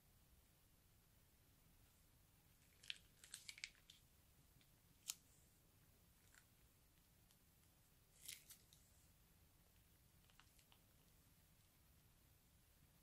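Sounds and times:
slime crackling from piping bag: 2.7s - 4.0s.

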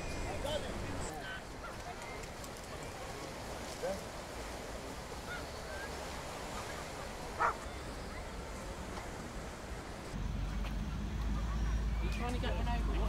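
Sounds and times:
surf on a shingle shore: 0.0s - 10.2s.

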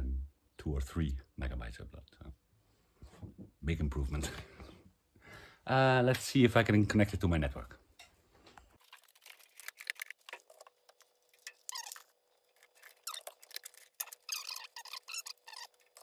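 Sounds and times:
cables clicking and rustling: 8.0s - 16.0s.

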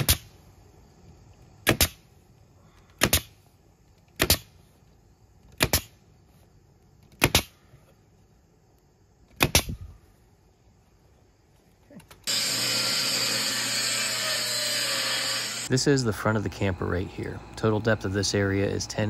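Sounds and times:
nail gun firing: 1.6s - 2.0s, 3.0s - 3.4s, 4.2s - 4.5s, 5.6s - 5.9s, 7.1s - 7.5s, 9.4s - 9.8s.

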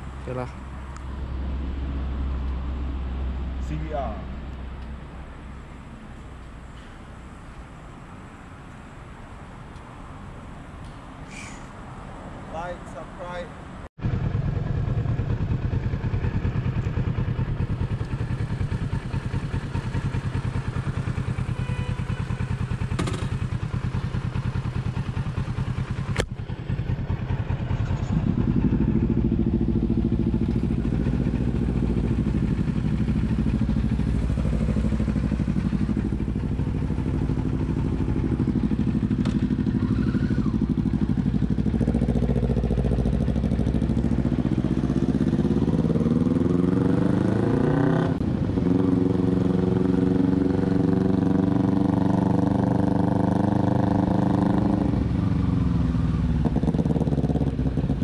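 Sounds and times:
traffic: 0.0s - 58.0s
motorcycle engine rumbling: 14.0s - 58.0s.

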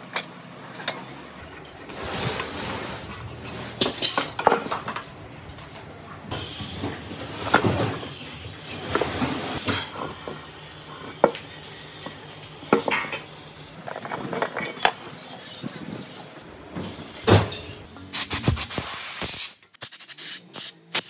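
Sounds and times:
compressed air blasts: 18.1s - 21.0s.

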